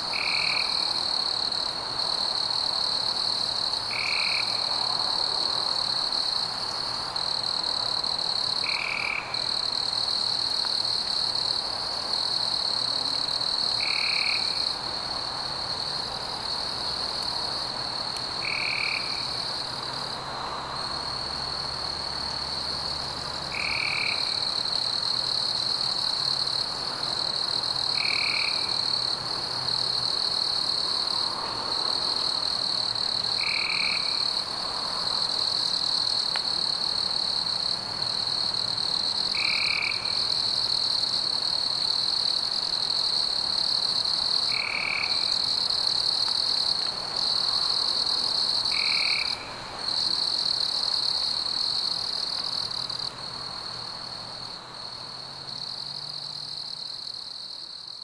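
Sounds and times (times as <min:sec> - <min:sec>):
insects trilling: 0:00.0 - 0:57.6.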